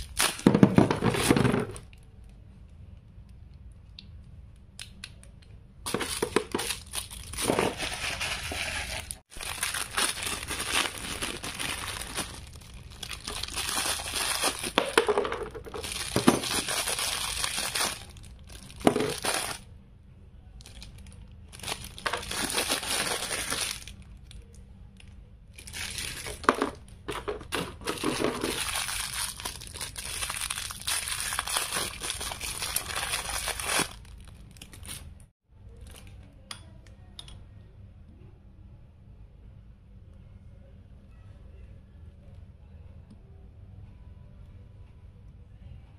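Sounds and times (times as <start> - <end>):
packaging crinkling and tearing: 5.9 - 15.0, 15.7 - 19.6, 20.6 - 24.1, 25.6 - 35.1.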